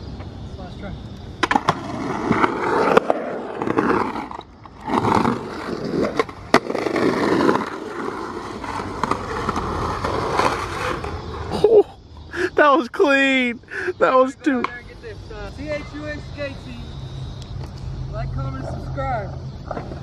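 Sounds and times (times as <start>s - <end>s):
skateboard wheels rolling on concrete: 0.0s - 20.0s
skateboard clacking on ground: 1.4s - 11.5s.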